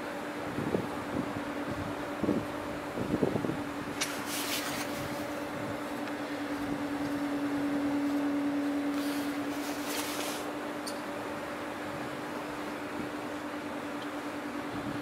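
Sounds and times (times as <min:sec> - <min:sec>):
ship machinery hum: 0:00.0 - 0:15.0
wind hiss on microphone: 0:00.4 - 0:05.9.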